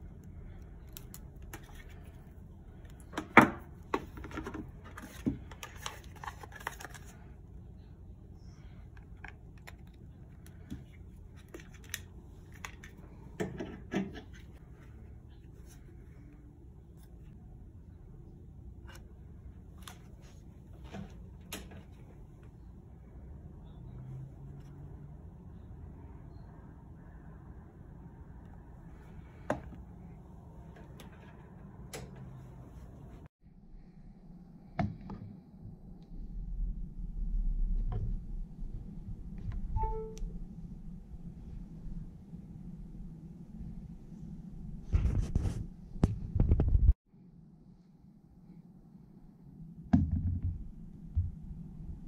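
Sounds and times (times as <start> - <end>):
low hum: 14.3 - 45.8.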